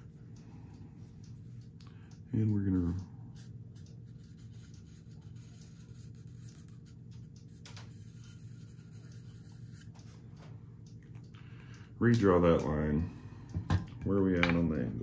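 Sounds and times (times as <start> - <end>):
steady low hum: 0.0 - 15.0
marker scratching on blade: 3.4 - 9.9.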